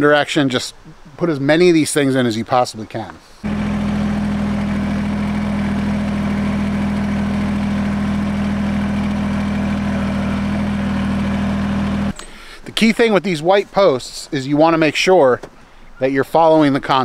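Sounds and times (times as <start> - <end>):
tractor diesel engine running: 3.4 - 12.2.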